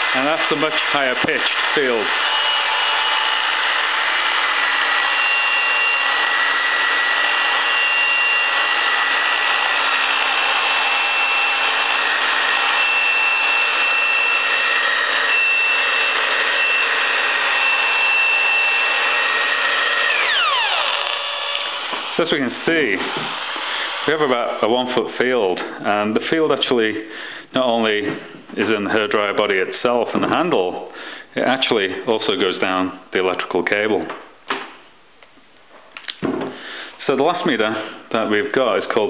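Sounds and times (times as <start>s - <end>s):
hairdryer running: 2.8s - 22.3s, 22.9s - 24.1s.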